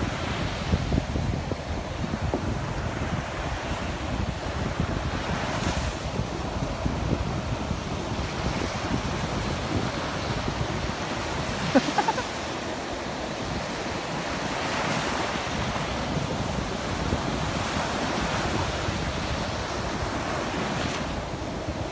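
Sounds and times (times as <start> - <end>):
sea surf washing onto beach: 0.0 - 21.9
wind buffeting microphone: 0.0 - 21.9.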